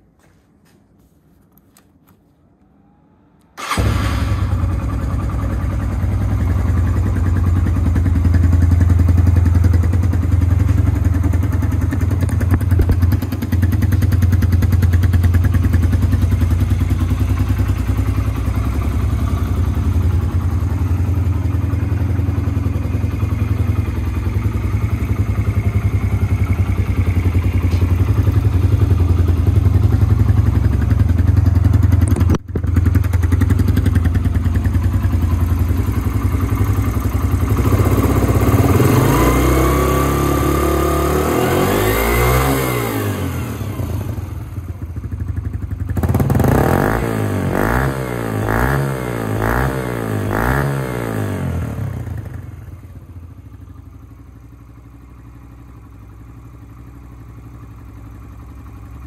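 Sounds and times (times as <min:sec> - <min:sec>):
motorcycle engine starting and idling: 0:00.2 - 0:59.0.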